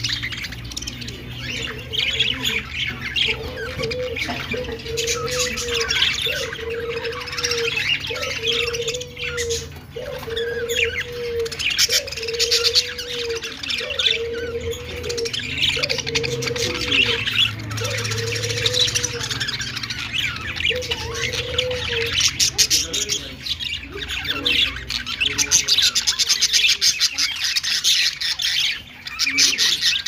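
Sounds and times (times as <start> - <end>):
budgerigars chattering: 0.0 - 30.0.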